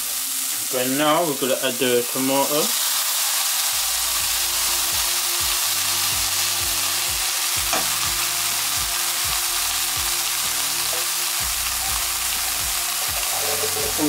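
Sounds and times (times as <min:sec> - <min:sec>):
food sizzling in frying pan: 0:00.0 - 0:14.0.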